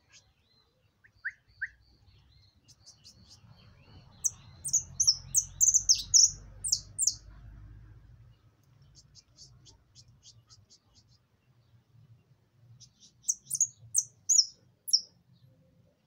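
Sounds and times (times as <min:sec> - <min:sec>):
finch singing: 0:00.0 - 0:07.3, 0:12.8 - 0:15.1.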